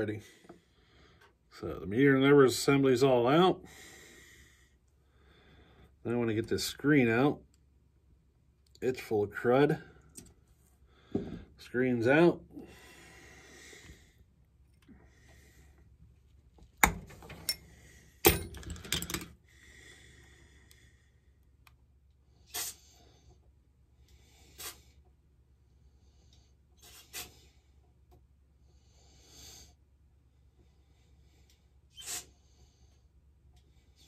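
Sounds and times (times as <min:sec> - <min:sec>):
metal parts clicking and tapping: 0:16.8 - 0:19.4.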